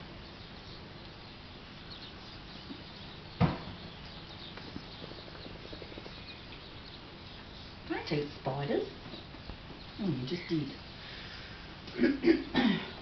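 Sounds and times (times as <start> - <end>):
loud thump: 3.4 - 3.9
puppy paws clicking on floor: 4.3 - 9.9.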